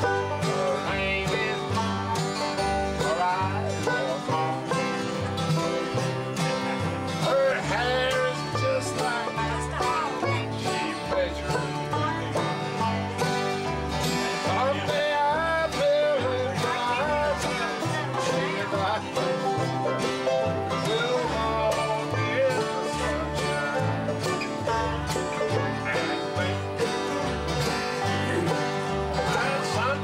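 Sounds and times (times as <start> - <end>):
picked banjo: 0.0 - 30.0
strummed acoustic guitar: 0.0 - 30.0
upright bass plucking: 0.0 - 30.0.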